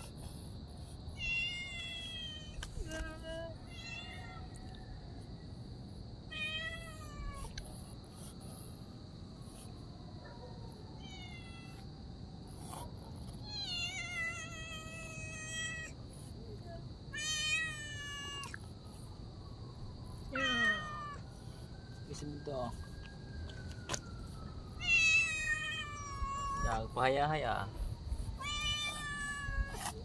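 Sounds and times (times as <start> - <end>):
cat meowing: 1.2 - 2.6, 3.7 - 4.6, 6.3 - 7.6, 11.0 - 11.8, 13.5 - 16.0, 17.1 - 18.6, 20.3 - 21.2, 24.8 - 26.9, 28.4 - 30.0.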